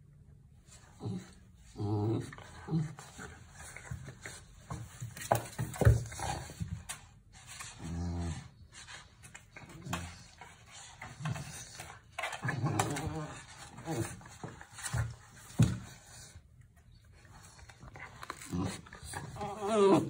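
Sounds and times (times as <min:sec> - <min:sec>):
puppy whining: 0:16.9 - 0:20.0.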